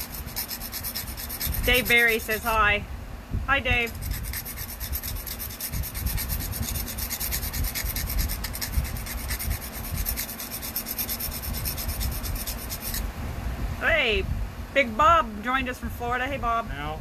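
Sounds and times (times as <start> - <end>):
knife rubbing on sandpaper: 0.0 - 2.6, 3.9 - 13.0.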